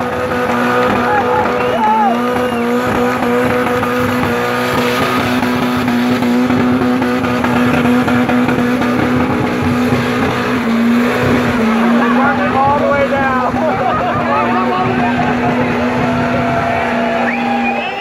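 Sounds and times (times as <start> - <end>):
car engine revving high: 0.0 - 18.0
tyres spinning on pavement: 0.0 - 18.0.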